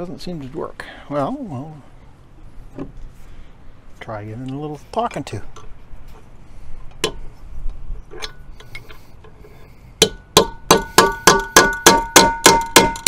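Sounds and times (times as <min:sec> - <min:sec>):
hammer striking metal chisel: 0:10.0 - 0:13.0.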